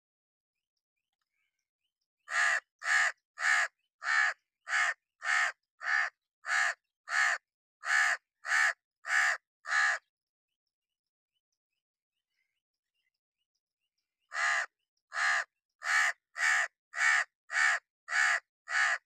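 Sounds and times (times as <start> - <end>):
crow cawing: 2.3 - 10.1, 14.3 - 19.0.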